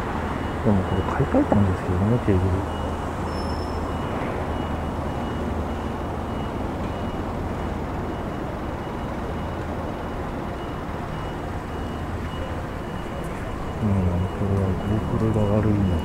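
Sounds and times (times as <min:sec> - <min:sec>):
vehicle engine humming: 0:00.0 - 0:16.0
high electronic beeps: 0:11.2 - 0:16.0.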